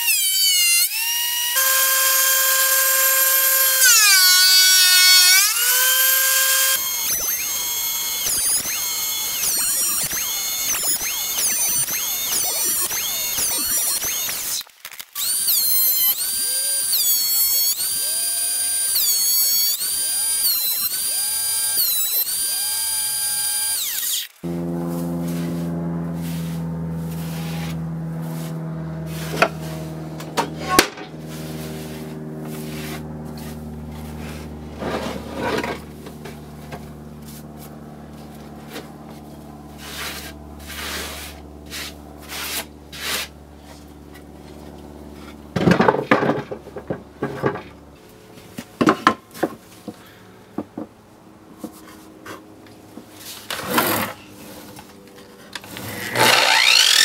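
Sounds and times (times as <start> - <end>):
steady hum: 15.7 - 45.6
hand sweeping wood shavings: 25.2 - 29.9, 31.3 - 35.2.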